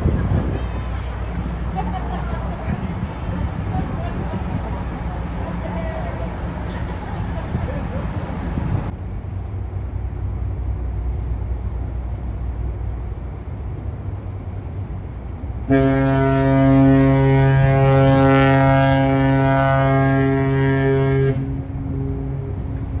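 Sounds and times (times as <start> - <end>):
low steady rumble: 0.0 - 23.0
deep ship horn blast: 15.6 - 22.7.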